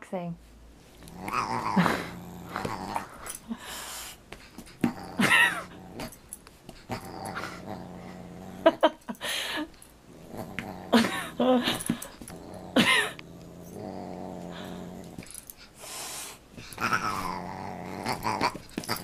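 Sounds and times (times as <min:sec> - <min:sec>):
dog growling: 0:01.0 - 0:03.7, 0:04.7 - 0:09.1, 0:10.0 - 0:15.6, 0:16.6 - 0:19.0.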